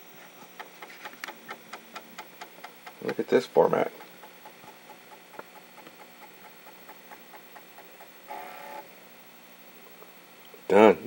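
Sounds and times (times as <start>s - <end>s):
floppy drive buzz: 0.0s - 11.0s
floppy drive head clicking: 0.3s - 8.5s.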